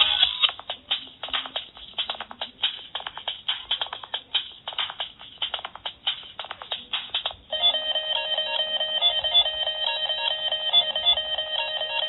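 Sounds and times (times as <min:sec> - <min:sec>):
electronic beeping ringtone: 0:07.5 - 0:12.0.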